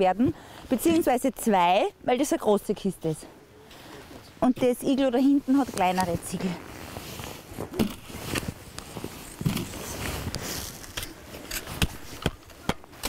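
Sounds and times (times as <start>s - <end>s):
snow shovel crunching and scraping: 5.5s - 13.0s.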